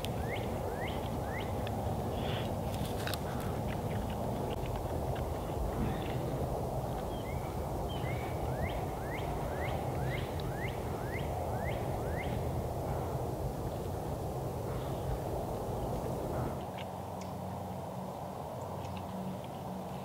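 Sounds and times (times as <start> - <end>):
low background noise: 0.0 - 20.0.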